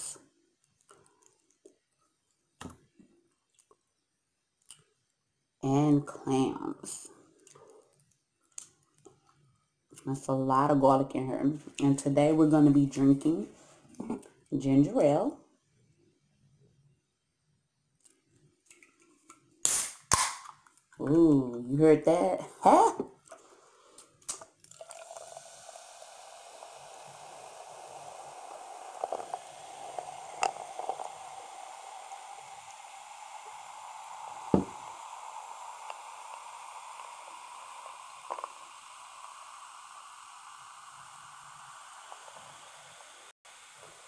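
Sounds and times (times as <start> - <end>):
liquid pouring into glass: 24.6 - 42.6
fizzing hiss: 24.7 - 44.0.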